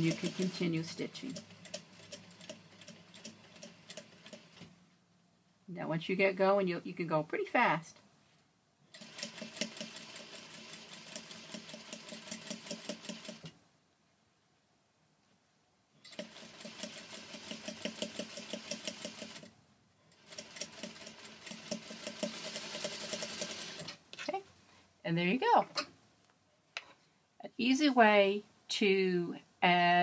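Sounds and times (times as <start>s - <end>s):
sewing machine stitching: 0.0s - 4.7s, 9.0s - 13.6s, 16.1s - 19.5s, 20.2s - 24.0s.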